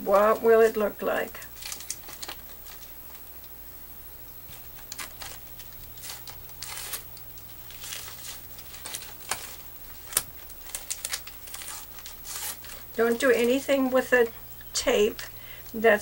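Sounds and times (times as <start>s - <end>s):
fabric crinkling and tearing: 1.4s - 3.0s, 4.5s - 14.1s.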